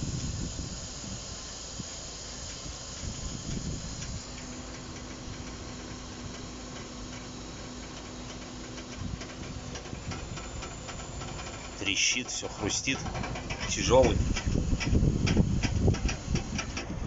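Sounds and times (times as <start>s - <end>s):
air hissing under truck: 0.0s - 17.0s
steady low hum: 0.0s - 17.0s
fine rapid ticking: 7.9s - 16.9s.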